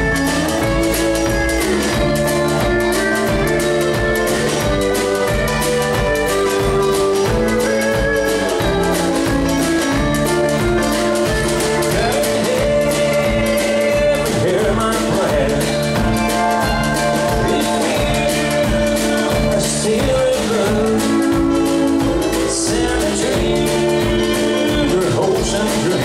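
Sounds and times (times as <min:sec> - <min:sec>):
acoustic guitar: 0:00.0 - 0:26.0
electric bass: 0:00.0 - 0:26.0
pedal steel guitar: 0:00.0 - 0:26.0
man singing: 0:11.2 - 0:26.0.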